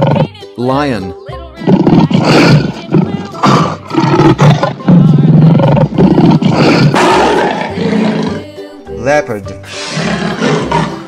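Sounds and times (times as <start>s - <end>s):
lion roaring: 1.7s - 8.4s, 9.7s - 11.0s.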